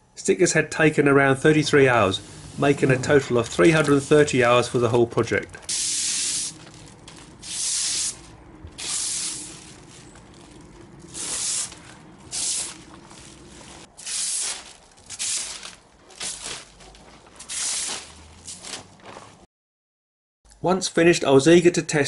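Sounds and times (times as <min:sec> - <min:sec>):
plastic film peeling: 0:02.2 - 0:19.4.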